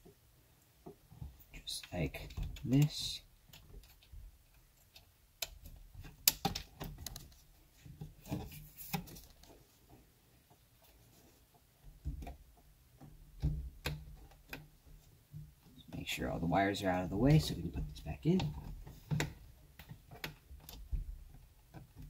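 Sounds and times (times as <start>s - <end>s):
hard plastic clicks and knocks: 17.7s - 22.0s.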